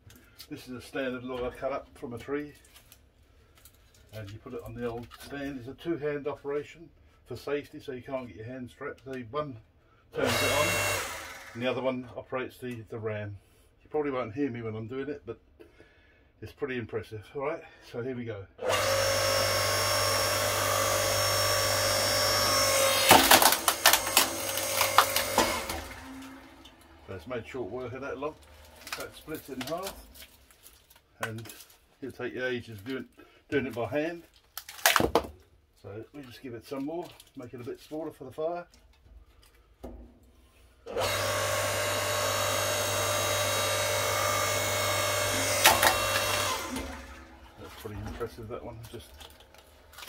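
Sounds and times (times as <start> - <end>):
hydraulic log splitter hum: 10.2 - 11.8, 18.6 - 30.4, 40.8 - 50.0
log cracking and splitting: 23.0 - 26.3, 28.2 - 31.7, 34.4 - 35.4.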